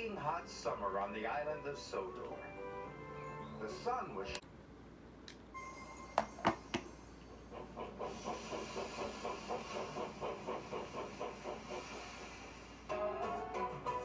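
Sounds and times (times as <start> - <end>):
cartoon steam locomotive chugging: 6.8 - 14.0
steam hissing: 7.5 - 13.6.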